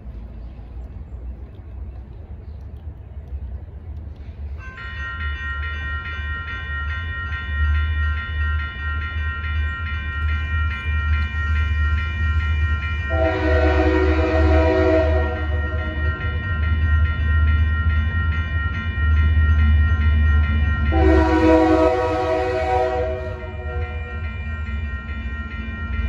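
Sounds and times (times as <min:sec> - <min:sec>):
crossing bell ringing: 0:04.6 - 0:26.0
train horn: 0:13.1 - 0:16.2, 0:20.9 - 0:24.2.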